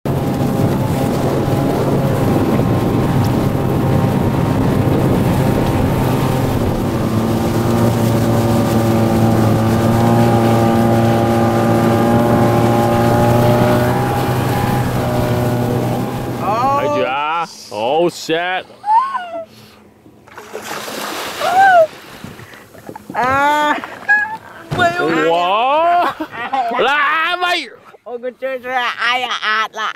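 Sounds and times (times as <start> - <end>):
wind buffeting microphone: 0.0 - 16.9
outboard motor running: 0.0 - 25.8.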